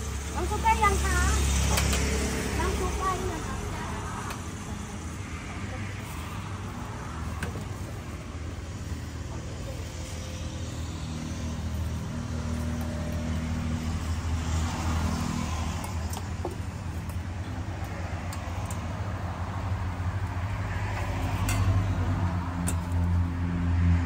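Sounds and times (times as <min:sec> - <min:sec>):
vehicle engine running: 0:00.0 - 0:18.2
street traffic: 0:00.0 - 0:24.0.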